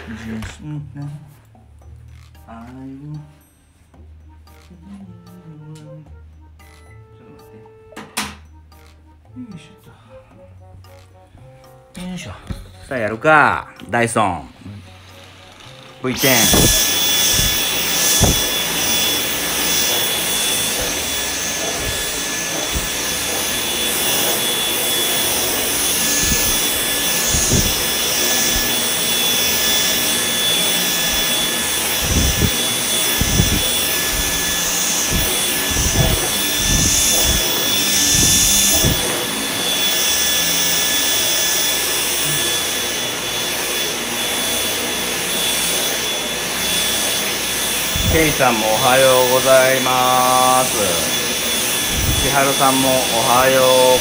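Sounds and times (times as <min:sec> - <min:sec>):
vacuum cleaner motor whine: 0:00.0 - 0:00.8, 0:14.1 - 0:54.0.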